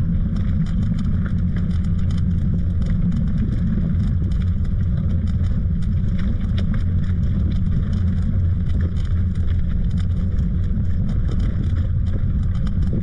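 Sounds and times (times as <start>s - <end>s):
wind buffeting microphone: 6.0s - 13.0s.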